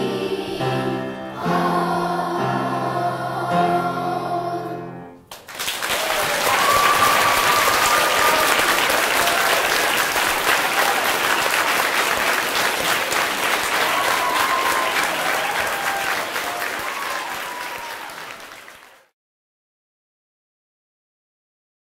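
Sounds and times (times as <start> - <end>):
large audience applauding: 5.3 - 19.1.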